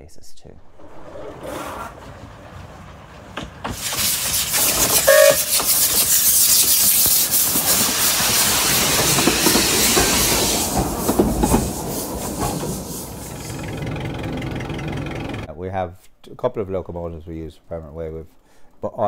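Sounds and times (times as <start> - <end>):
steam locomotive passing: 0.6 - 15.5
wheels clicking over rail joints: 0.6 - 15.5
steam hissing: 3.6 - 14.3.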